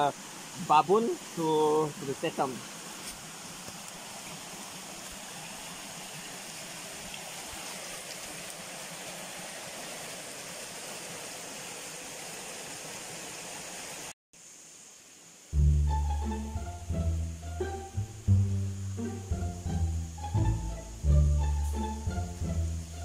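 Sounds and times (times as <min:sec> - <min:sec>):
fast-flowing stream rushing: 0:00.0 - 0:14.1.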